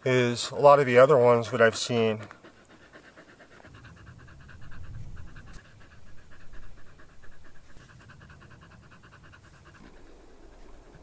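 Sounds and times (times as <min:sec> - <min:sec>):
dog panting: 0:00.0 - 0:11.0
low rumbling noise: 0:02.6 - 0:11.0.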